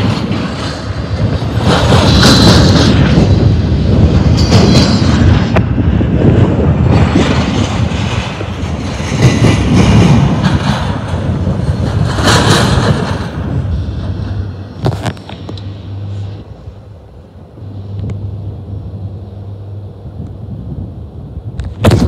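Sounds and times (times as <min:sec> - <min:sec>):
train wheels clattering on rail: 0:00.0 - 0:15.7.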